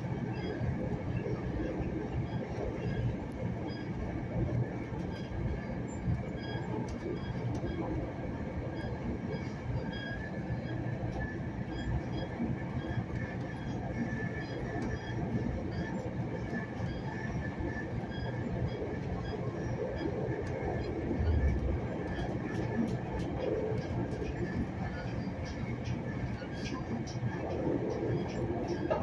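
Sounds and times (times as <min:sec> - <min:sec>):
rail car rumbling on track: 0:00.0 - 0:29.0.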